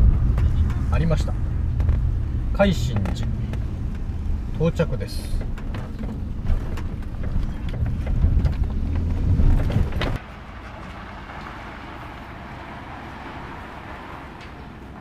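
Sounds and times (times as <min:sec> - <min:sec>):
van engine and road rumble: 0:00.0 - 0:15.0.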